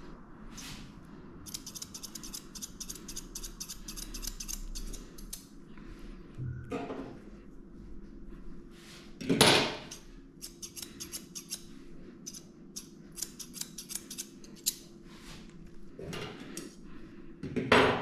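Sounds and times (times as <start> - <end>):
faint low hum: 0.0 - 17.4
shears snipping hair: 1.4 - 5.5, 9.8 - 14.9.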